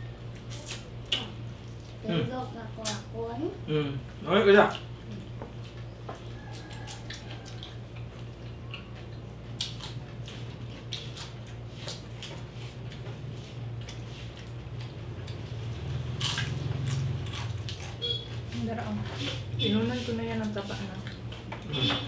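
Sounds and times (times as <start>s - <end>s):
steady low hum: 0.0s - 22.0s
wet lip smacks and chewing: 5.7s - 13.1s.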